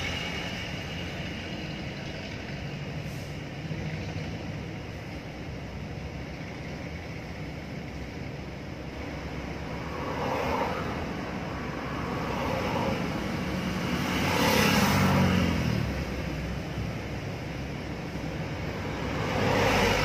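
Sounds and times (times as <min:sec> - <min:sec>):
car engine and tyre rumble: 0:00.0 - 0:20.0
vehicle passing close by: 0:09.6 - 0:16.7, 0:17.6 - 0:20.0.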